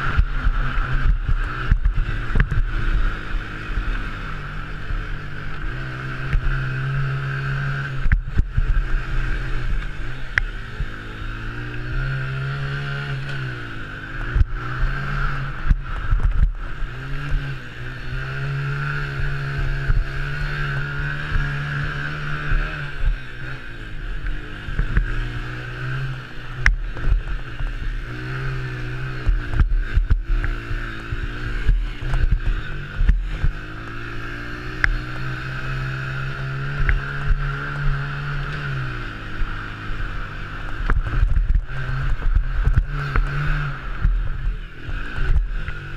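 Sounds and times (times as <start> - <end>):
quad bike engine racing: 0.0 - 45.9
wind buffeting camera: 0.0 - 45.9
knocks and thuds from rough track: 0.1 - 3.2, 14.2 - 17.5, 24.6 - 35.1, 39.7 - 45.9.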